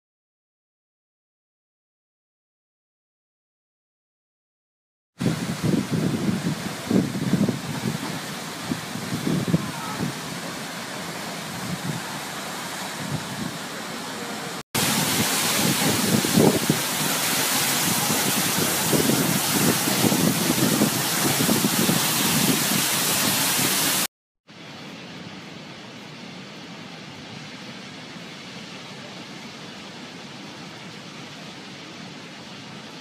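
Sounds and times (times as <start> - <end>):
wind buffeting microphone: 5.2 - 13.7, 14.8 - 24.1
waterfall rushing: 5.2 - 33.0.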